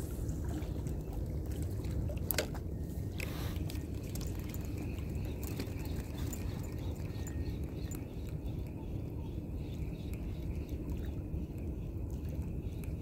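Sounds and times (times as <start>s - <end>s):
water lapping among rocks: 0.0s - 8.0s
wind rumbling on microphone: 0.0s - 13.0s.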